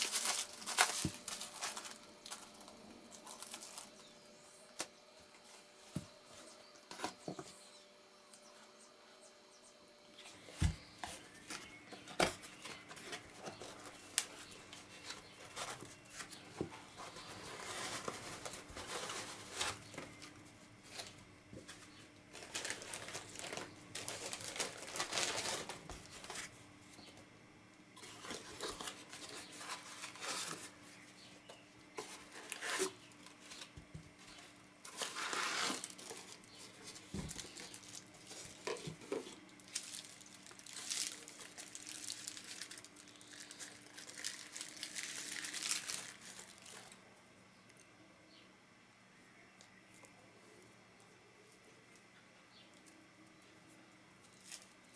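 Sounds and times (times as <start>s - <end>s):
bubble wrap being unwrapped: 0.0s - 4.9s, 11.1s - 26.6s, 28.0s - 31.0s, 32.0s - 47.0s, 54.2s - 54.9s
cardboard box rustling: 10.6s - 20.3s.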